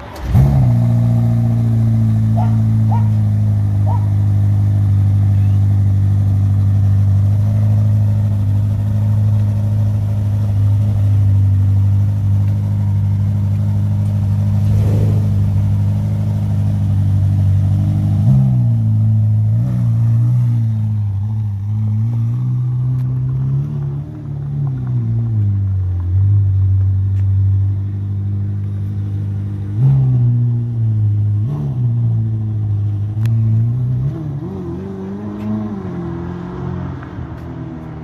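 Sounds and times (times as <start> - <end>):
car engine idling: 0.0 - 29.8.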